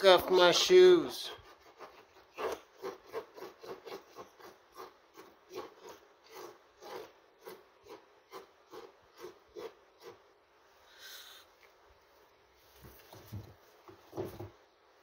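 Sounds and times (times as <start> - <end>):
parrot beak scraping a sneaker: 1.3 - 10.2.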